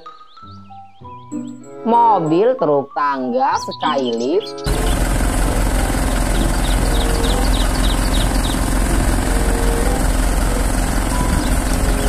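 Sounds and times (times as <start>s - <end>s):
truck engine running: 4.5s - 12.0s.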